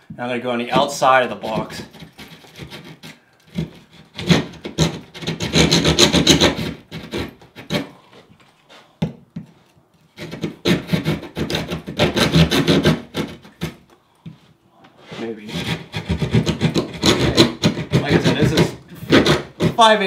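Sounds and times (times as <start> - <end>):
hand saw cutting drywall: 0.7 - 8.0, 10.1 - 13.8, 15.1 - 20.0.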